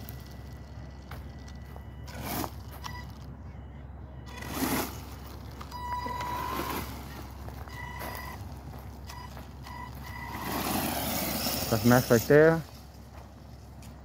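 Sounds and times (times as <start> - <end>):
tyres churning wood chips: 4.3 - 8.9, 9.7 - 13.3.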